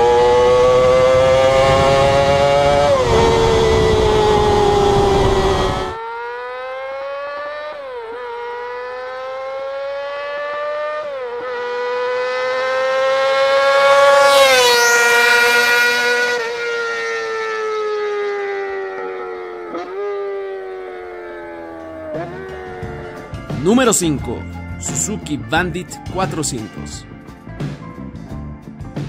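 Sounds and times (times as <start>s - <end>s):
sportbike engine screaming at high revs: 0.0s - 23.0s.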